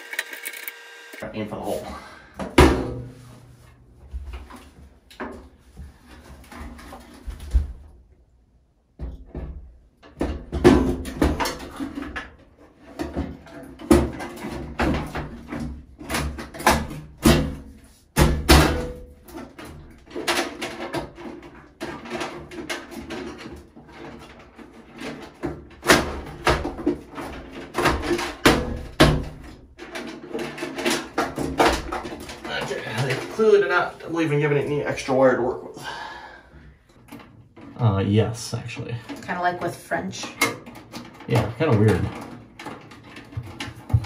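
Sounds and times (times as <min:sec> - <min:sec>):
cabinet knocking against wall: 0:43.3 - 0:44.0.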